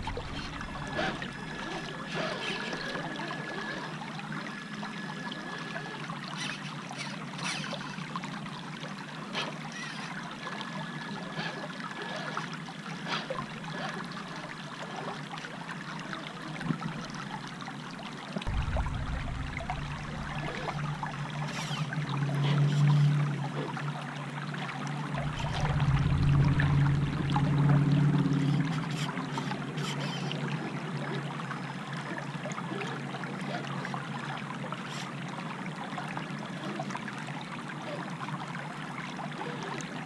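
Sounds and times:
low rumble: 0.0 - 1.9, 18.5 - 22.4, 25.1 - 28.8
creek water trickling over rocks: 0.0 - 40.0.

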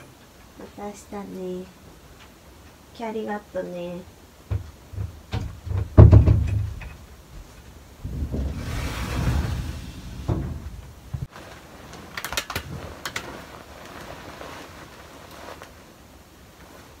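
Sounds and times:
sliding door rolling shut: 8.0 - 11.3.

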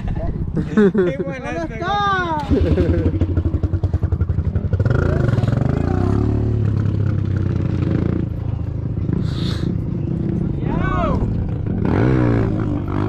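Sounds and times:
dirt bike engine revving: 2.4 - 10.6, 11.2 - 13.0.

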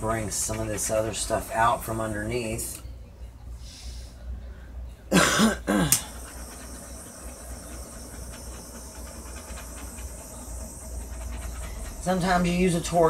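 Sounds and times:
torch flame hissing: 5.3 - 13.0.

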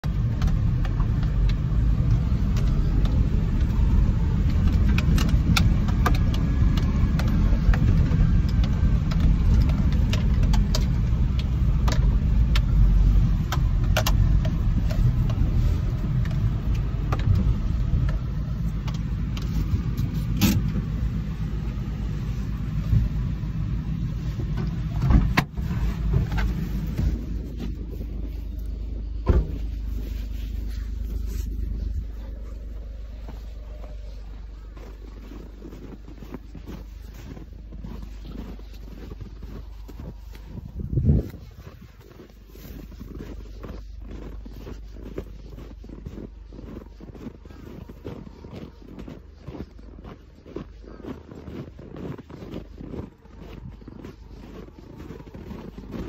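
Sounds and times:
car cabin rumble: 0.0 - 56.0.

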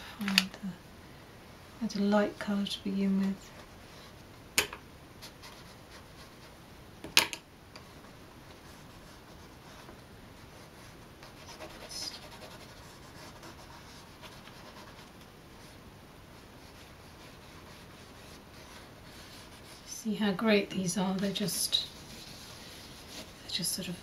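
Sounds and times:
pastel scratching on paper: 8.6 - 15.8, 16.4 - 20.0, 21.3 - 23.6
scratchy rustle: 21.2 - 23.6.

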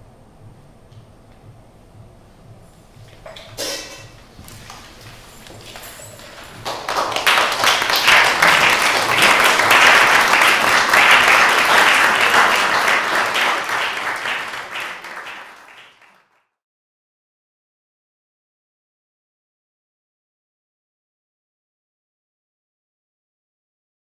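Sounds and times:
audience applauding: 5.6 - 16.4.

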